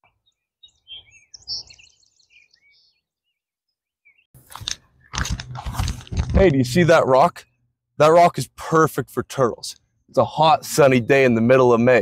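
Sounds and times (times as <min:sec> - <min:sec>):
small birds chirping: 0:00.0 - 0:05.2.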